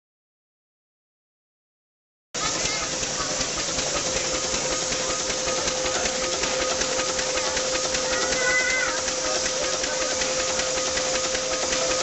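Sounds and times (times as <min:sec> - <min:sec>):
fast clatter of motion work: 0:02.4 - 0:12.0
hiss of steam: 0:02.4 - 0:12.0
steady hum: 0:02.4 - 0:12.0.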